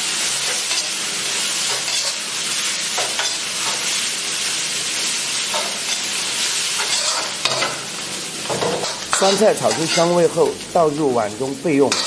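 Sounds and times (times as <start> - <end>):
pickles sizzling in hot lard: 0.0 - 12.0
metal ladle scraping a pan: 1.7 - 2.2, 5.5 - 7.8, 8.5 - 10.2.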